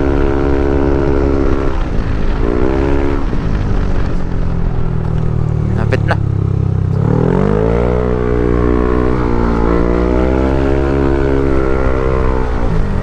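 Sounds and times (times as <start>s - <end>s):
scooter engine revving: 5.3s - 13.0s.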